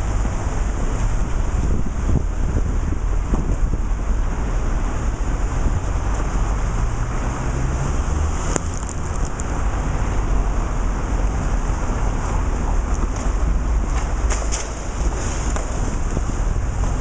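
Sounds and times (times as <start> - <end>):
wind buffeting microphone: 0.1 - 4.6.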